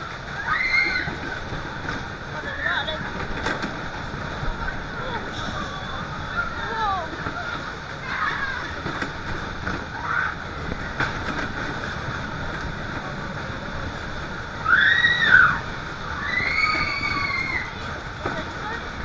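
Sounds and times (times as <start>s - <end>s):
fairground ride rushing: 0.0s - 19.0s
high rising and falling scream: 14.6s - 17.8s.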